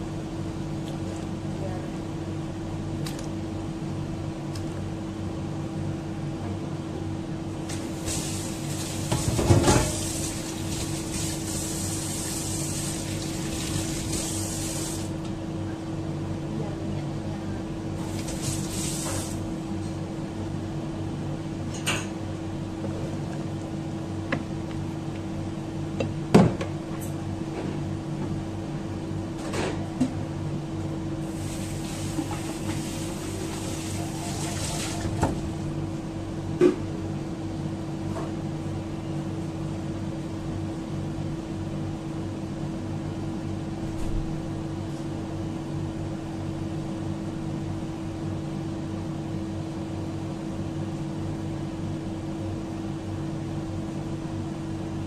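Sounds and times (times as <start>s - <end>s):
machine hum: 30.7s - 37.5s.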